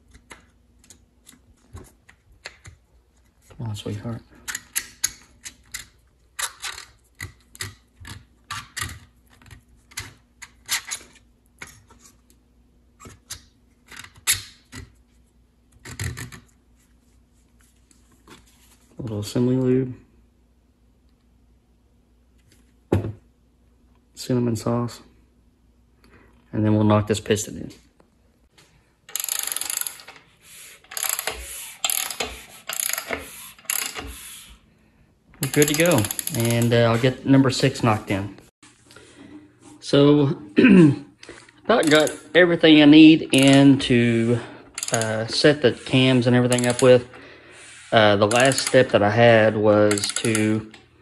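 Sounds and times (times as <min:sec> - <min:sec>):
ratchet wrench clicking: 0:29.1 - 0:30.2, 0:30.8 - 0:34.3, 0:35.4 - 0:36.7, 0:44.8 - 0:45.1, 0:46.5 - 0:46.9, 0:48.3 - 0:48.8, 0:49.9 - 0:50.4
metal clicks and scrapes: 0:35.4 - 0:37.0, 0:44.8 - 0:47.0, 0:48.2 - 0:49.0, 0:49.9 - 0:50.8.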